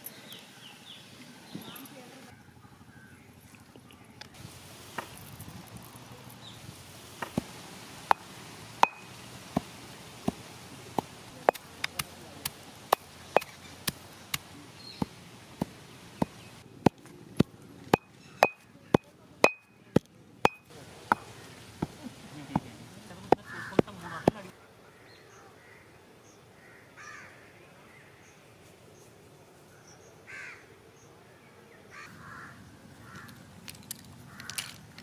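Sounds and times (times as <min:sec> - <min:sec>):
stone pestle pounding in mortar: 0:08.8 - 0:09.0, 0:16.2 - 0:22.0.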